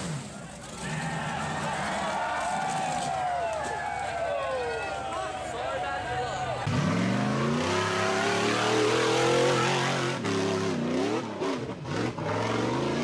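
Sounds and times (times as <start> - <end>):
buggy engine revving hard: 6.6 - 13.0.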